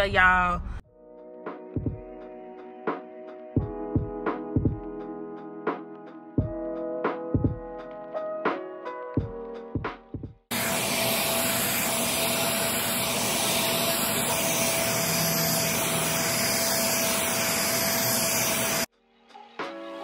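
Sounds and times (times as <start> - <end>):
hair dryer whirring: 10.5 - 18.9.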